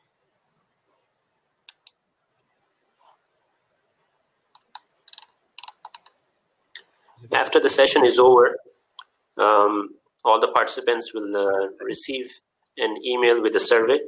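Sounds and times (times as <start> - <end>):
faint room hiss: 0.0 - 14.0
computer mouse clicks: 1.7 - 2.5, 4.5 - 6.2.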